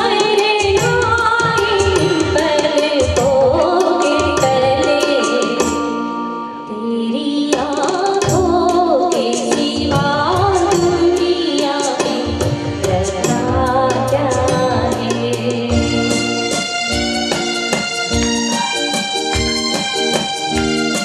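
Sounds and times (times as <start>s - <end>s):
hand drum rhythm: 0.0s - 5.9s, 7.6s - 21.0s
woman singing through microphone: 0.0s - 16.5s
electronic keyboard chords: 12.3s - 21.0s.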